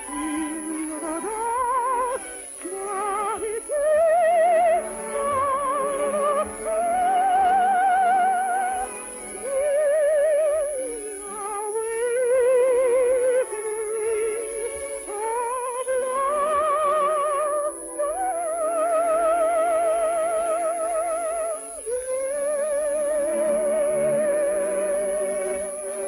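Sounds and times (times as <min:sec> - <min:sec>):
orchestra playing: 0:00.0 - 0:03.8
operetta singing in high voice: 0:00.0 - 0:26.0.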